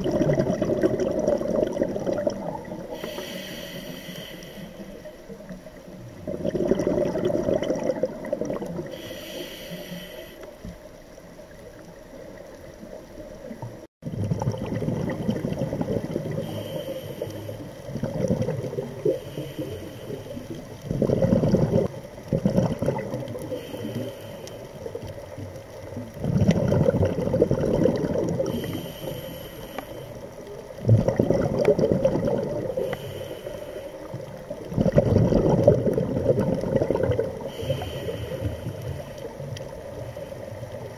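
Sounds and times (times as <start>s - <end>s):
exhaled bubbles rumbling underwater: 0.0s - 40.9s
regulator high hiss: 2.9s - 5.1s, 9.0s - 10.5s.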